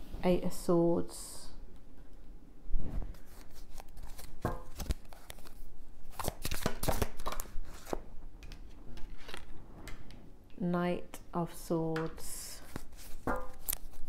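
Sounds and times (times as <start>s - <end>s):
cards being shuffled: 3.1s - 9.5s, 12.6s - 14.0s.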